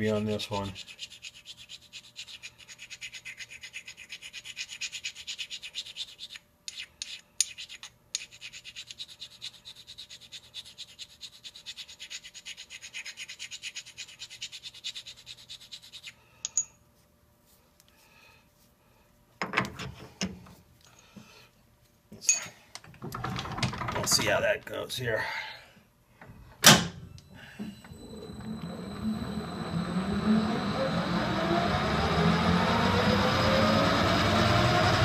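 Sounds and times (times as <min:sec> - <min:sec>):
tool rubbing on sharpening stone: 0:00.6 - 0:16.6.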